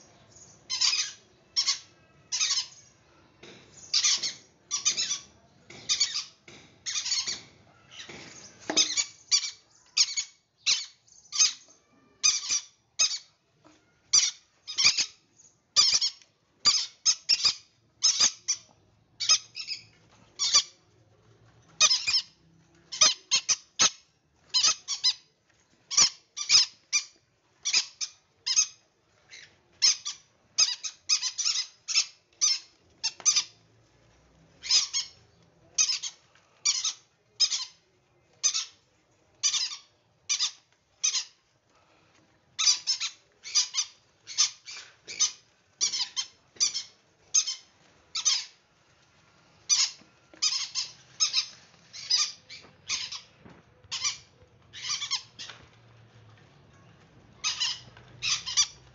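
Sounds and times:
parrots squawking: 0.7 - 2.8, 5.9 - 13.3, 14.1 - 15.2, 15.8 - 18.6, 19.2 - 20.7, 21.8 - 25.3, 25.9 - 33.6, 34.6 - 35.2, 35.8 - 37.8, 38.4 - 38.8, 39.4 - 41.4, 42.6 - 48.6, 49.6 - 55.7, 57.4 - 58.9.

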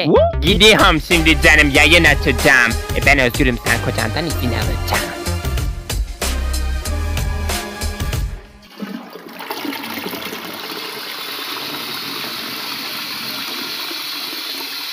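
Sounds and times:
background music: 0.0 - 8.6
running water rushing: 8.6 - 14.9.

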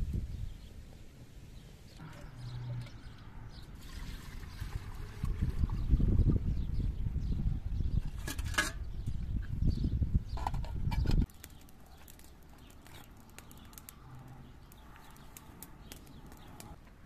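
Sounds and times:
water pouring into a kettle: 3.8 - 5.9.

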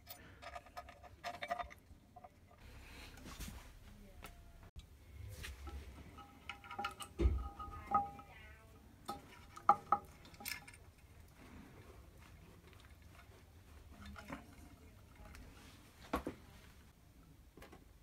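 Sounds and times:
metallic clicks of wires handled: 5.6 - 8.3, 9.0 - 11.1.

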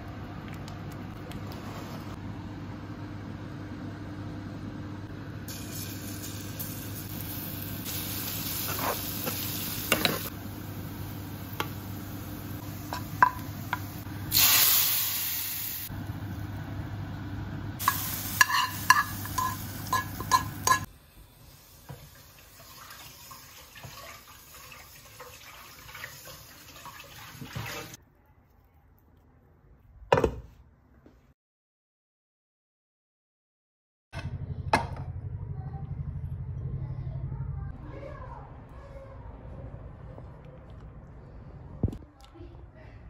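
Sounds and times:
onions sizzling in oil: 5.5 - 15.9, 17.8 - 28.0
spoon scraping a pan: 8.6 - 10.3, 17.8 - 20.9.

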